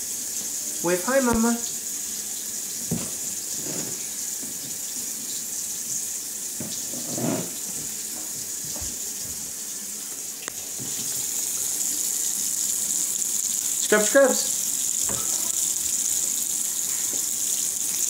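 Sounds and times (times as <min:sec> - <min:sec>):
faucet water splashing into sink: 0:00.0 - 0:09.4, 0:10.4 - 0:18.0.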